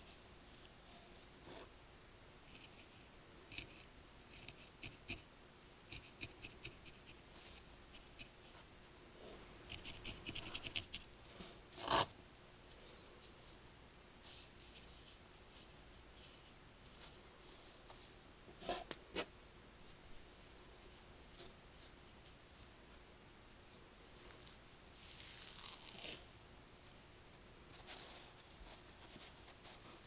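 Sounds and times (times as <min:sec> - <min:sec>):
felting needle scratchy ticks: 0:03.5 - 0:05.3, 0:05.9 - 0:07.2, 0:07.9 - 0:08.4, 0:09.7 - 0:11.1.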